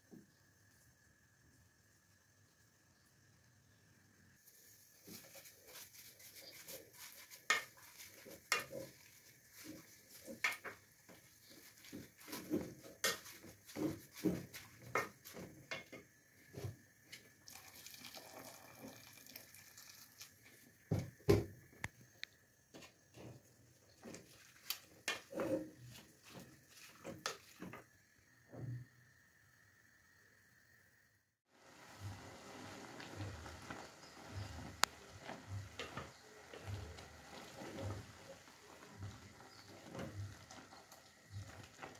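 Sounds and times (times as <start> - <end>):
wooden spoon scraping metal pot: 4.5 - 16.7, 23.9 - 27.9, 32.0 - 41.9.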